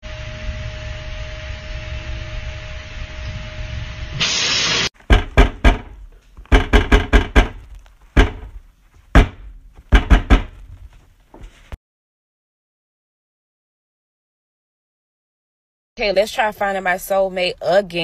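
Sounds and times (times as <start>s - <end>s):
loud burst of hiss: 4.1s - 4.9s.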